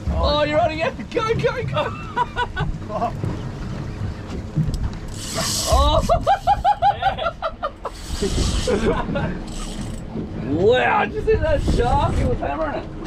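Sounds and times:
boat rumble: 0.0 - 13.0
wind: 0.0 - 13.0
fishing reel drag buzzing: 5.1 - 6.1, 7.8 - 10.0.

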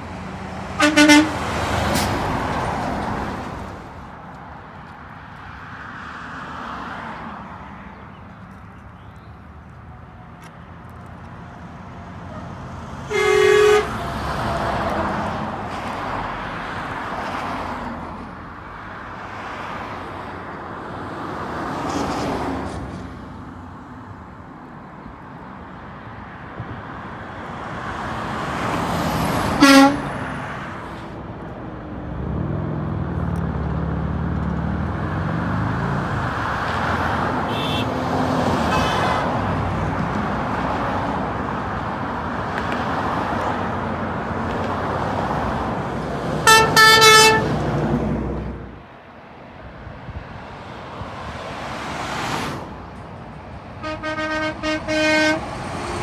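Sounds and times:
road traffic passing: 0.0 - 56.0
vehicle horn toots: 0.8 - 1.4, 13.1 - 14.1, 29.6 - 30.2, 37.5 - 37.9, 46.4 - 47.6, 53.8 - 55.5.

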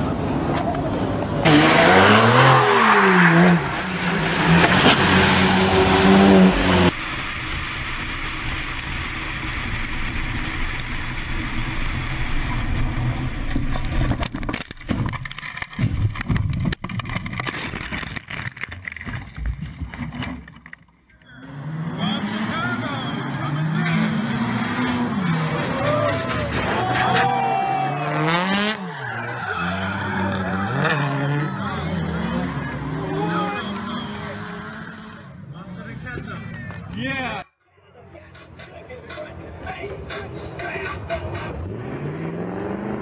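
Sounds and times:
engine and road noise inside car: 0.0 - 16.2
car engine revving hard: 1.4 - 14.3, 21.5 - 26.8, 27.9 - 28.9, 29.7 - 35.2, 41.6 - 43.0
knocks and rattles: 13.4 - 21.0.

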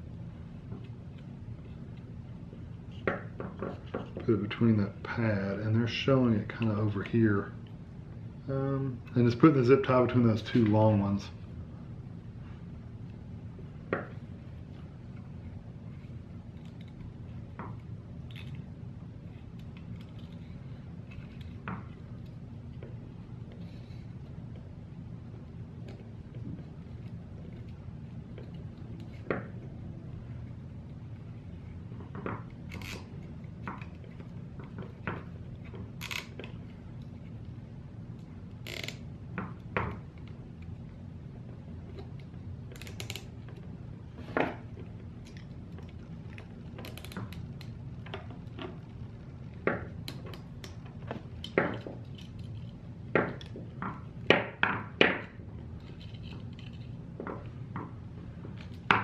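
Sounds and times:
ratchet clicks: 36.0 - 36.3, 38.6 - 39.0.

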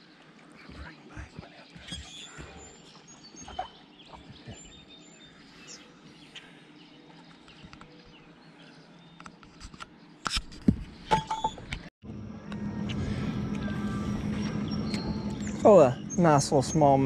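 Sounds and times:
songbirds chirping: 0.0 - 11.9, 13.5 - 17.0.

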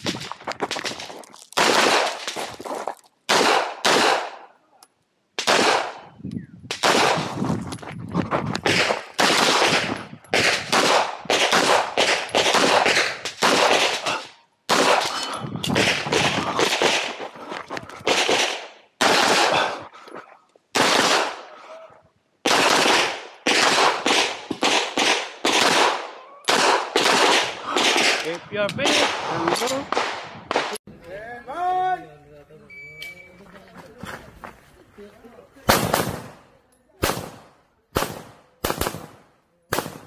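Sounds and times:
pistol shots cracking: 0.0 - 2.5, 3.3 - 4.5, 5.4 - 6.1, 6.7 - 7.4, 8.6 - 17.3, 18.0 - 19.8, 20.7 - 21.5, 22.4 - 30.8, 35.7 - 36.4, 37.0 - 40.0.

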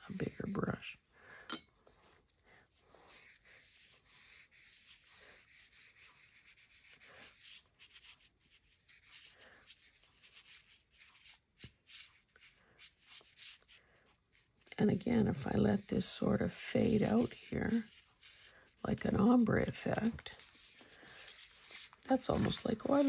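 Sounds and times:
paintbrush brushing on paper: 2.8 - 23.0.

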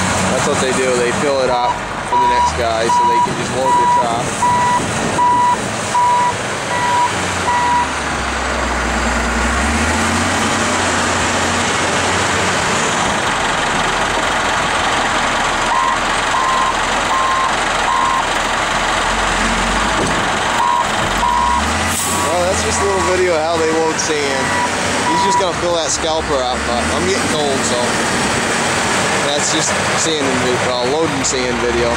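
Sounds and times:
diesel engine working hard: 0.0 - 31.9
backup alarm beeping: 2.1 - 7.9, 15.7 - 18.3, 20.6 - 23.3, 24.4 - 25.6.

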